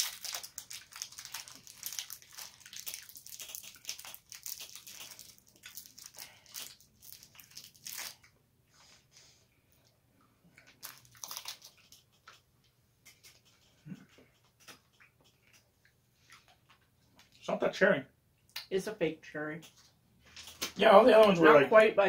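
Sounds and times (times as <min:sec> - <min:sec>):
candy wrapper crinkling: 0:00.0 - 0:08.3, 0:10.6 - 0:12.4.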